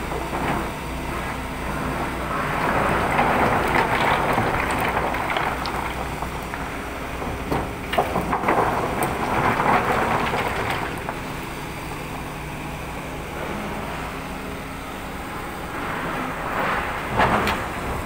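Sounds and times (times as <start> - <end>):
diesel engines running: 0.0 - 18.0
rocks clattering into steel bin: 2.4 - 11.8.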